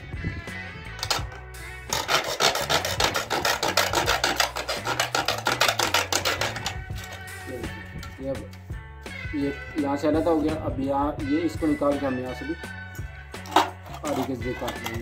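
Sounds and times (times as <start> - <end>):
hand sawing plastic box: 1.0 - 7.3, 13.5 - 15.0.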